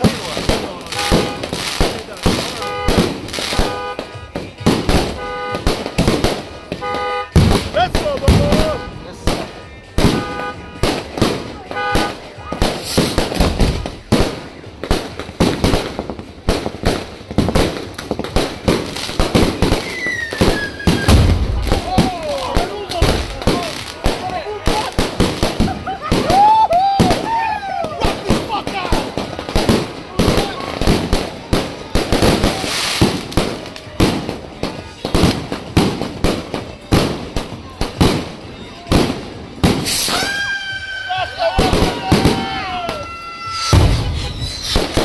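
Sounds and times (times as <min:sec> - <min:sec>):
fireworks bangs: 0:00.0 - 0:45.0
firework whistle: 0:19.6 - 0:22.0, 0:39.7 - 0:45.0.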